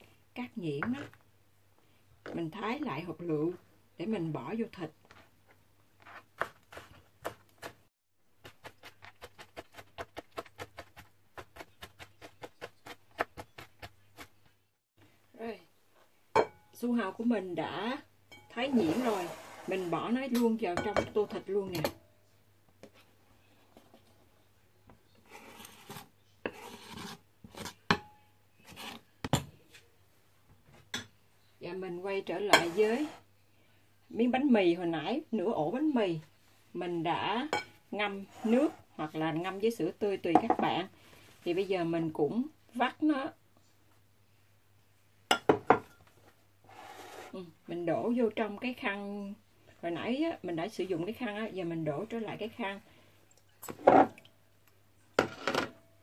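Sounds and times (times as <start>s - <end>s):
knife chopping on plastic board: 6.4s - 7.8s, 8.4s - 14.3s
knife scraping cutting board: 18.7s - 20.1s, 25.3s - 27.8s, 28.7s - 29.0s, 32.6s - 33.2s, 38.3s - 38.8s, 46.7s - 47.4s.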